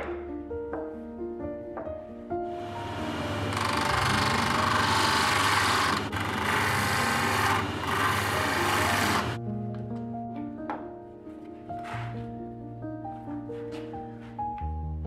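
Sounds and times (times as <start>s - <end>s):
sanding disc grinding wood: 2.7s - 9.4s.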